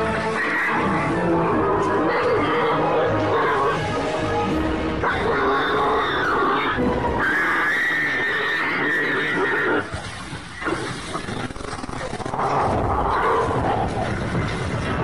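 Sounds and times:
harsh animal calls: 0.2s - 4.1s, 5.0s - 9.9s
animals squealing: 0.3s - 3.9s, 5.0s - 9.9s.

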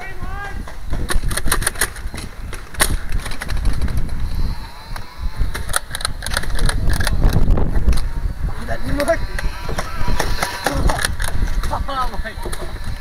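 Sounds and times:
toy blaster whirring and firing: 1.1s - 13.0s.

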